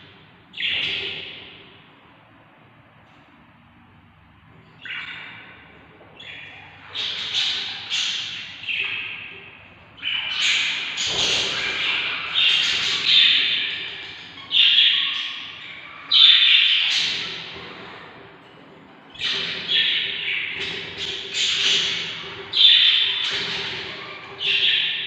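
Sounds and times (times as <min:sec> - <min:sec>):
budgerigars giving raspy calls: 0:06.2 - 0:09.3, 0:10.0 - 0:17.6, 0:19.2 - 0:25.0.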